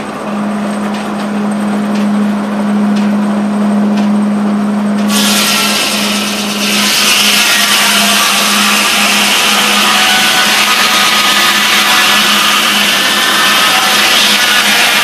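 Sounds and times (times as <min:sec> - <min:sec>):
steady low hum: 0:00.0 - 0:15.0
circular saw ripping wood: 0:05.1 - 0:15.0.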